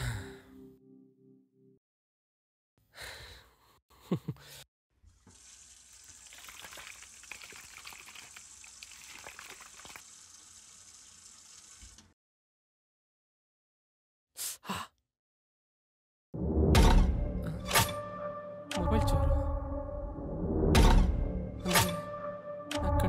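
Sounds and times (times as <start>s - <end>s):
tap running into washbasin: 5.1s - 12.1s
water splashing on face: 5.2s - 12.0s.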